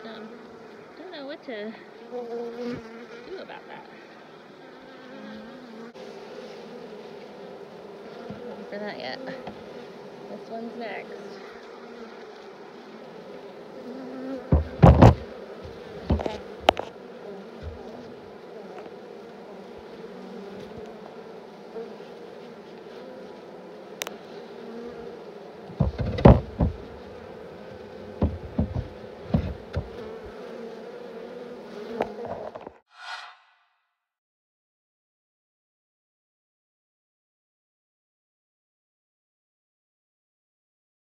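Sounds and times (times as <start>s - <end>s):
honeybees buzzing: 0.0s - 32.9s
knocks on hive box: 14.5s - 16.9s, 17.6s - 18.0s, 25.7s - 27.2s, 28.0s - 30.2s.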